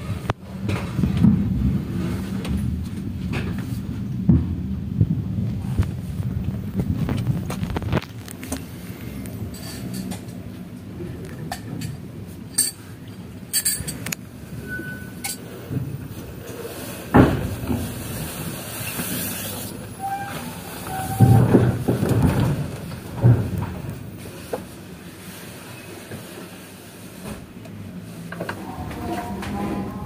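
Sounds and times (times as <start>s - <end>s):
train carriage rumble: 0.0s - 30.0s
clinks and knocks: 13.5s - 14.2s.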